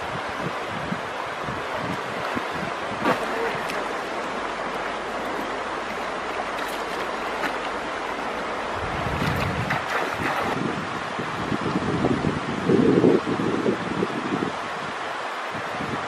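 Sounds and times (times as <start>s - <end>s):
river water running over stones: 0.0s - 12.6s
wind buffeting microphone: 0.0s - 16.0s
person wading through water: 1.7s - 10.6s.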